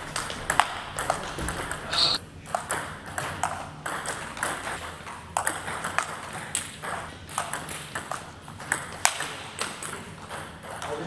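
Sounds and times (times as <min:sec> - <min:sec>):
ping pong ball on paddles: 0:00.2 - 0:10.9
ping pong ball bouncing on table: 0:02.5 - 0:04.7, 0:05.4 - 0:10.9.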